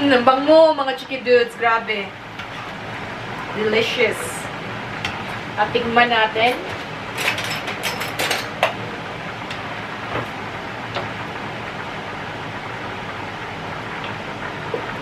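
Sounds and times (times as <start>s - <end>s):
utensils stirring and scraping pot: 2.3s - 2.9s
utensils clinking against pan: 6.4s - 8.8s.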